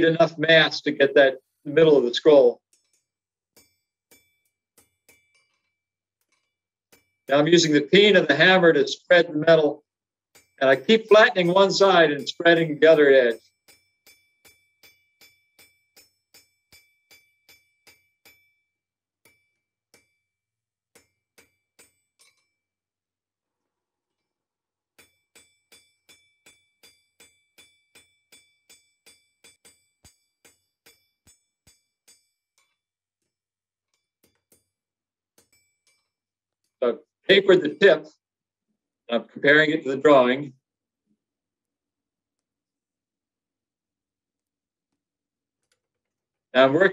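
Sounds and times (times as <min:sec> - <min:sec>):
hammer ringing on anvil: 0:03.6 - 0:05.7, 0:10.4 - 0:20.3, 0:21.0 - 0:22.6, 0:25.0 - 0:32.8.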